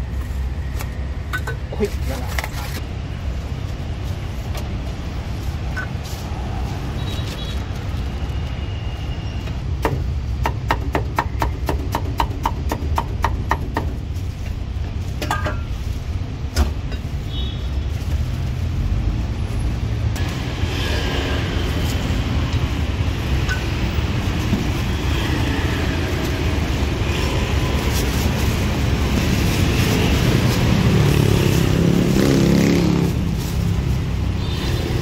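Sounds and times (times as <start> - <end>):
low rumble of street traffic: 0.0 - 35.0.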